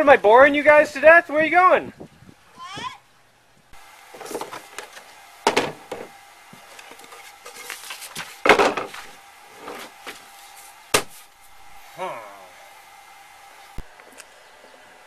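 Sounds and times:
paper rustling: 0:06.7 - 0:09.1.

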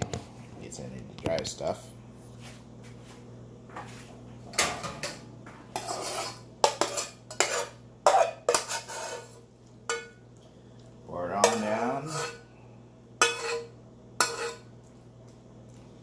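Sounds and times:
utensil scraping cooking pot: 0:04.8 - 0:10.1, 0:11.4 - 0:12.5, 0:13.2 - 0:14.7.

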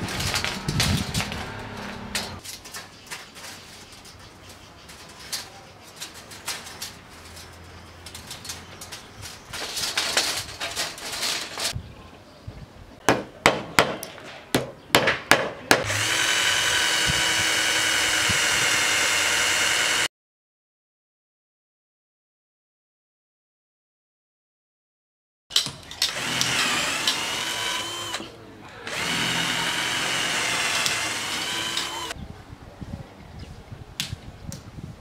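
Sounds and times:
metal strips clicking and scraping: 0:00.0 - 0:11.8
cordless drill whine: 0:15.9 - 0:20.1, 0:26.1 - 0:28.3, 0:28.9 - 0:32.2.

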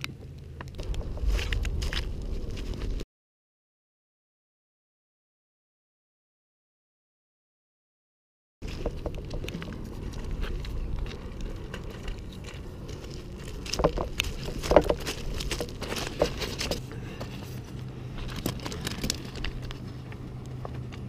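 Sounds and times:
low rumble: 0:00.0 - 0:03.0, 0:08.6 - 0:21.0
footsteps crunching on cobbles: 0:00.4 - 0:03.0, 0:08.6 - 0:21.0.

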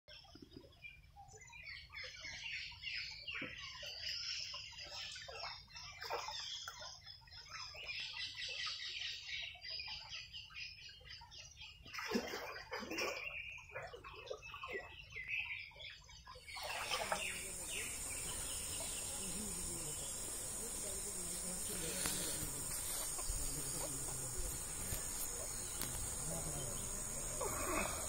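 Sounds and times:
birds chirping: 0:13.0 - 0:28.0.

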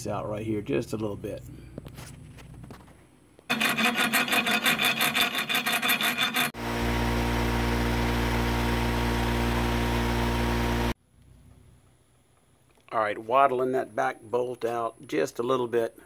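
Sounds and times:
file rasping in metal: 0:03.5 - 0:06.6.

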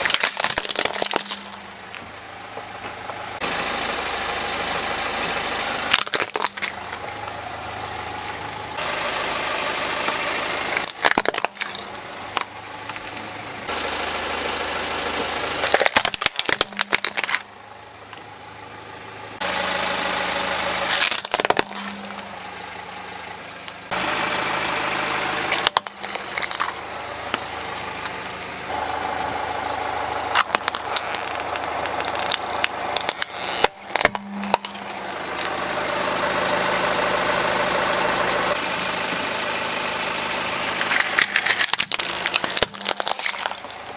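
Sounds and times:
plastic toys cracking under tyre: 0:00.0 - 0:01.6, 0:05.9 - 0:07.0, 0:10.7 - 0:13.1, 0:15.6 - 0:17.5, 0:20.9 - 0:22.3, 0:25.5 - 0:26.8, 0:30.3 - 0:35.6, 0:40.8 - 0:43.9
car engine running: 0:00.0 - 0:43.9.

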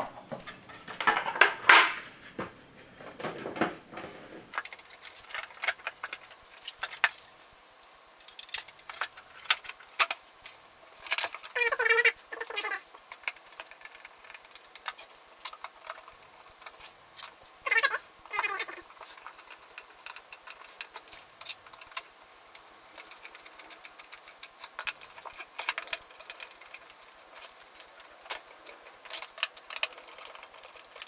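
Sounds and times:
plastic parts clicking and knocking: 0:00.0 - 0:07.3, 0:08.2 - 0:10.2, 0:22.9 - 0:31.0.

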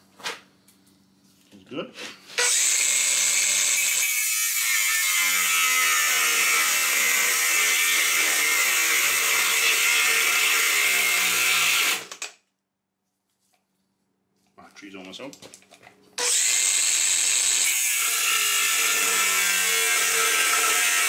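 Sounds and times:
angle grinder cutting steel pipe: 0:02.4 - 0:12.2, 0:16.2 - 0:21.0.

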